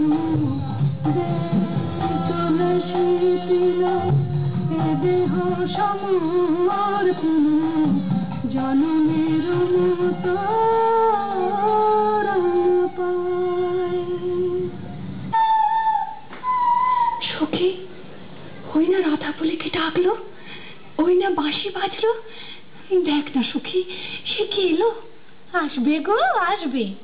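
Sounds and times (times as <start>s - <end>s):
instrumental accompaniment: 0.0s - 17.2s
woman singing gliding notes: 0.0s - 17.3s.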